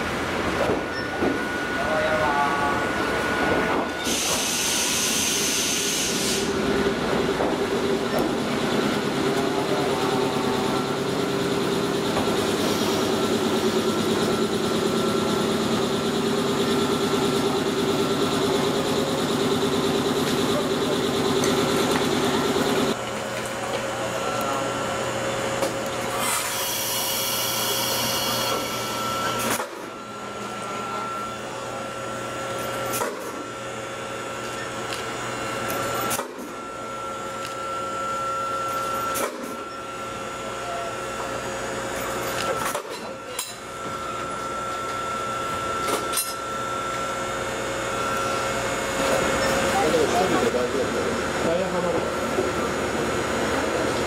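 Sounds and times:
train equipment mechanical drone: 0.0 - 54.0
compressed air hiss: 4.0 - 6.5.

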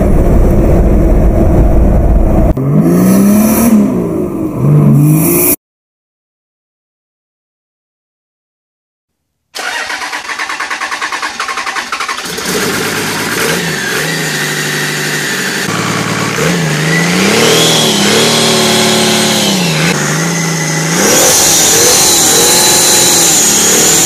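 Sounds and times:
diesel engine revving: 0.0 - 5.6, 9.6 - 24.0
high turbo whine: 0.0 - 5.6, 12.2 - 24.0.

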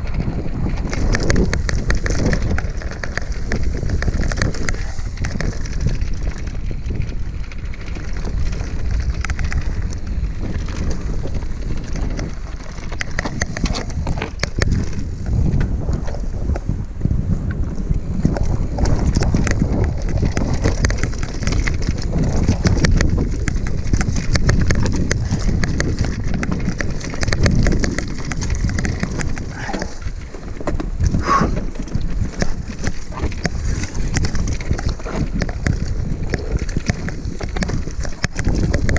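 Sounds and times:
bike rattling: 0.0 - 38.9
wind buffeting microphone: 0.0 - 38.9
tyres crunching over stones: 18.3 - 38.9.

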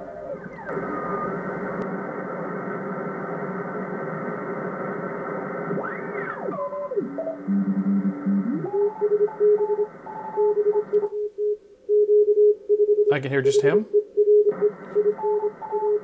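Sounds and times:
radio band noise hiss: 0.0 - 10.2
morse tones sweeping in pitch: 6.5 - 9.4.

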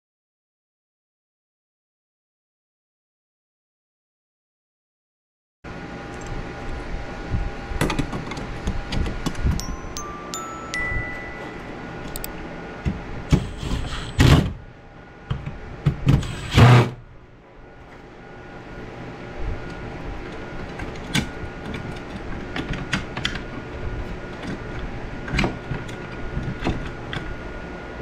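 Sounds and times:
steady background hum: 5.7 - 28.0.

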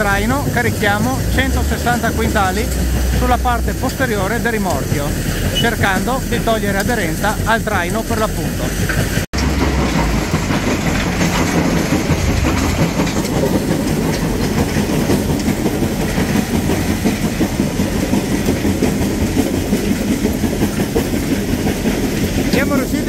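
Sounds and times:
rough rattling and rumbling: 0.0 - 23.0
truck diesel engine under load: 0.0 - 23.0.

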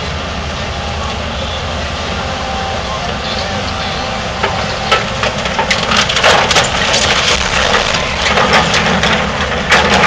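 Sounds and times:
diesel engine running: 0.0 - 10.0
debris clattering impacts: 4.9 - 10.0
wood cracking and splintering: 5.3 - 10.0.

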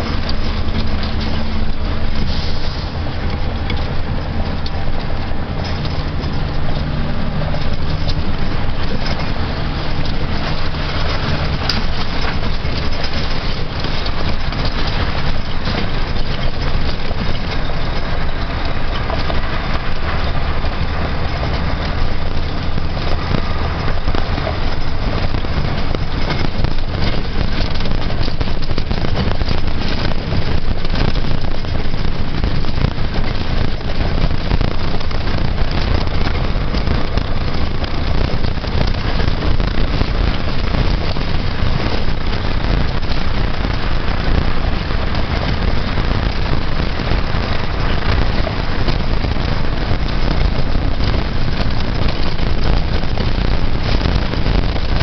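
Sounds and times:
cab knocks and rattles: 0.0 - 55.0
tyre noise on gravel: 0.0 - 55.0
vehicle engine running: 0.0 - 55.0.

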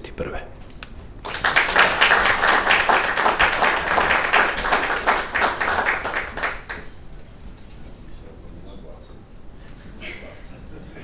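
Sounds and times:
audience applauding: 1.2 - 6.9.

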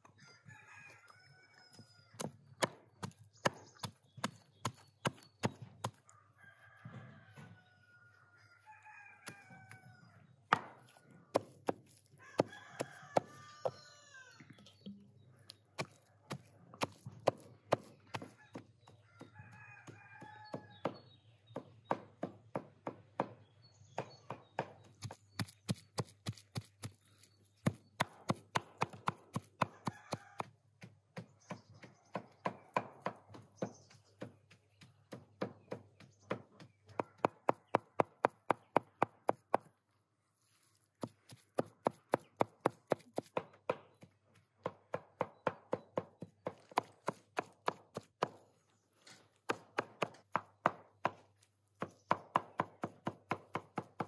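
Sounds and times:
rooster crowing: 0.2 - 2.2, 6.1 - 10.2, 12.2 - 14.4, 19.0 - 20.7, 29.7 - 30.5
cleaver chopping meat on wood: 2.2 - 6.0, 10.5 - 13.9, 15.5 - 39.7, 41.0 - 48.5, 49.4 - 54.0.

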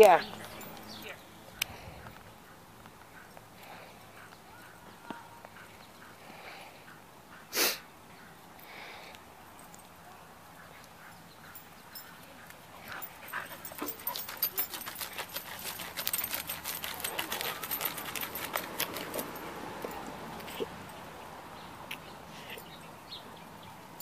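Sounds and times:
dog digging in dirt: 12.5 - 20.8.

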